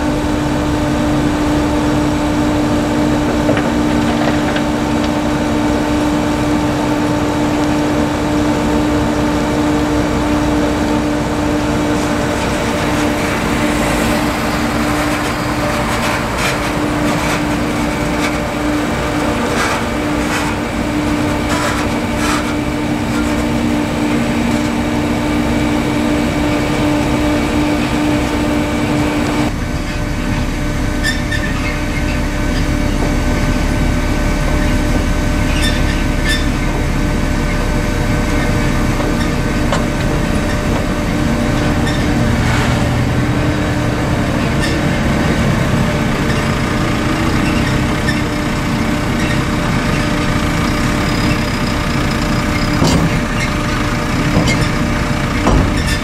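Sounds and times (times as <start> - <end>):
harvesting machinery droning hum: 0.0 - 56.0
rattling and clattering: 3.1 - 5.2.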